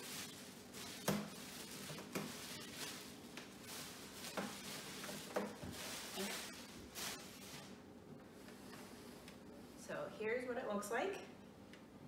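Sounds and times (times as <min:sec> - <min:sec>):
plastic wrapping crinkling: 0:00.0 - 0:07.8.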